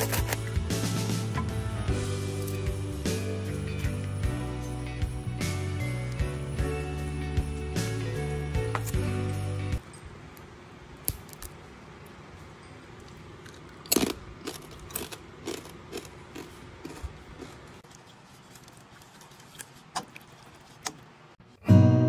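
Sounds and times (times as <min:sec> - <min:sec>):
small crunches: 0:13.0 - 0:20.9.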